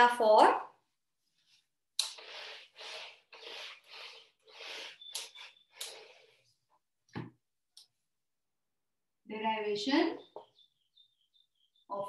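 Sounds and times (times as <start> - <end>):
eraser rubbing whiteboard: 2.0 - 6.5.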